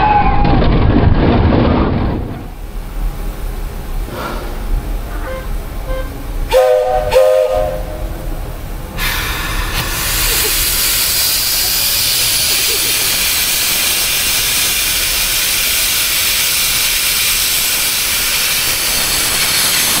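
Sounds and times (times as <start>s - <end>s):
steam hissing: 2.5s - 20.0s
steam locomotive chime whistle: 5.1s - 8.1s.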